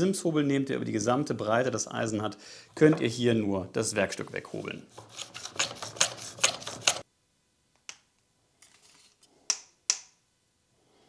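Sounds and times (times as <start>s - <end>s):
hand plane scraping wood: 4.1s - 7.0s.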